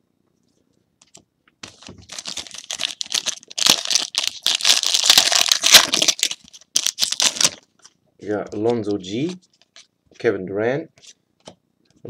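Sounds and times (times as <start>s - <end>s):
foil wrapper tearing and crinkling: 1.7s - 7.6s.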